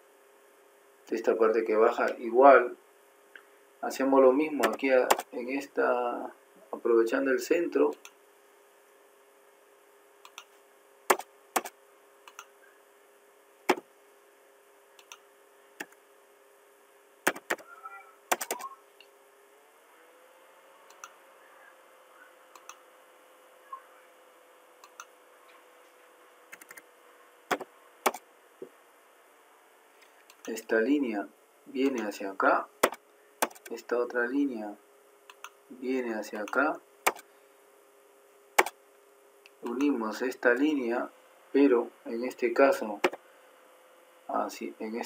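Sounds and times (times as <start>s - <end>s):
faint steady hum: 0.0s - 45.0s
mouse clicks: 10.2s - 10.5s, 12.3s - 12.5s, 15.0s - 15.2s, 20.9s - 21.2s, 22.6s - 22.8s, 24.8s - 25.1s, 35.3s - 35.6s.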